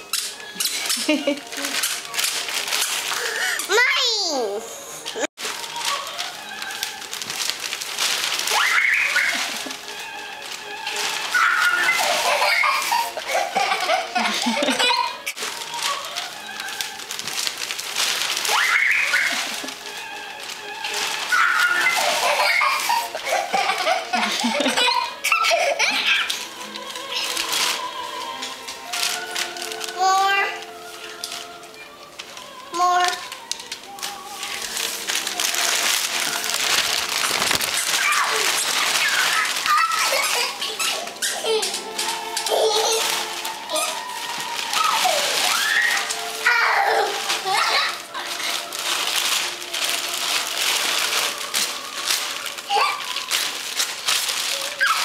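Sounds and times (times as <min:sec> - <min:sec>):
wrapping paper crinkling: 0:00.0 - 0:55.0
giggling and laughter: 0:00.7 - 0:01.8, 0:11.9 - 0:15.1, 0:21.7 - 0:26.3
high-pitched vocal cries: 0:08.4 - 0:09.7, 0:21.2 - 0:26.4, 0:44.7 - 0:48.3.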